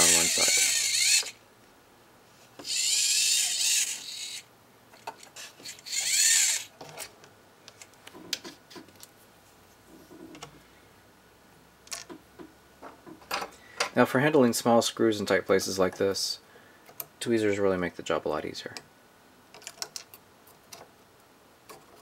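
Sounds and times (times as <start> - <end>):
servo gears whirring: 0.0 - 1.4, 2.6 - 4.5, 5.2 - 6.7
small clicks of handled parts: 11.8 - 12.2, 19.5 - 20.9.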